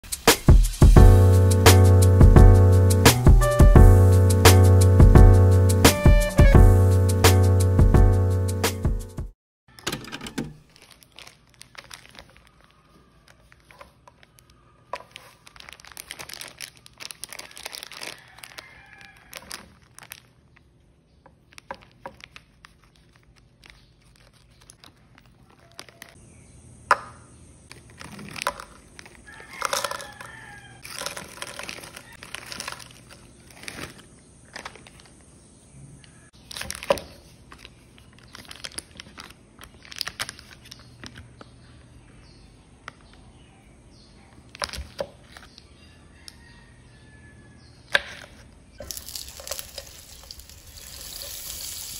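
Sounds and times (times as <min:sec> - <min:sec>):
scissors snipping plastic bag: 0:10.6 - 0:12.8, 0:30.8 - 0:35.0
paper wrapper rustling: 0:10.6 - 0:20.8, 0:21.4 - 0:26.2, 0:27.7 - 0:35.2, 0:36.4 - 0:41.2, 0:48.8 - 0:51.9
plastic bag crinkling: 0:10.6 - 0:20.8, 0:21.4 - 0:26.2, 0:27.7 - 0:35.3, 0:36.4 - 0:41.2, 0:48.8 - 0:51.9.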